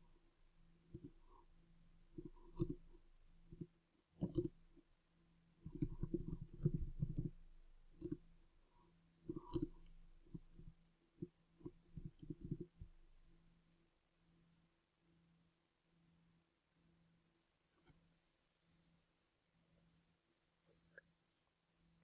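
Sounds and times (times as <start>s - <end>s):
faint steady hum: 0.0s - 22.0s
keyboard typing clicks: 4.2s - 4.6s.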